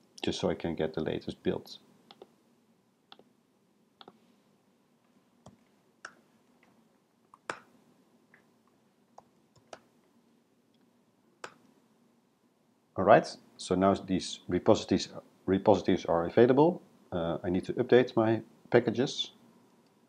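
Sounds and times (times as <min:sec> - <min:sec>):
computer mouse clicks: 0:02.1 - 0:02.3, 0:03.1 - 0:03.3.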